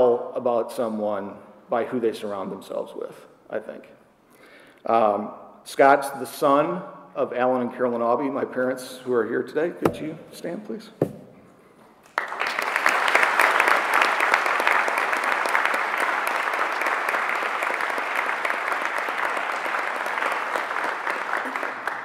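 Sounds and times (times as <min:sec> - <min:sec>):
audience applauding: 0:12.0 - 0:22.0.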